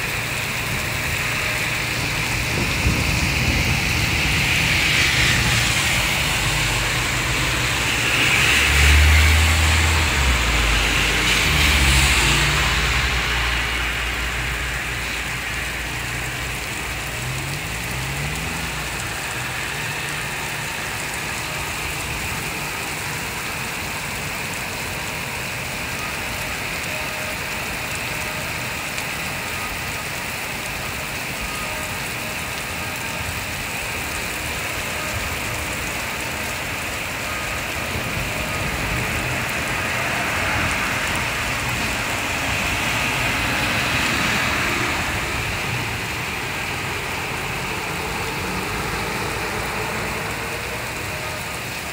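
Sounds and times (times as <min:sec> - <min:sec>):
heavy rain on roofs and road: 0:00.0 - 0:51.9
vehicle engine passing: 0:02.0 - 0:14.7.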